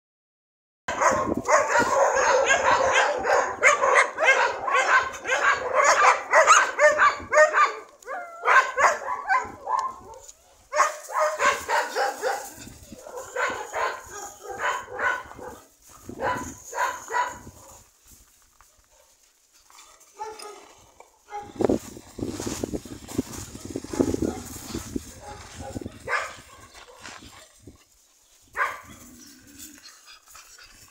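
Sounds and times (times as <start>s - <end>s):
dogs barking: 0.9s - 17.8s, 19.8s - 20.7s, 21.3s - 21.6s, 23.5s - 27.5s, 28.5s - 29.1s.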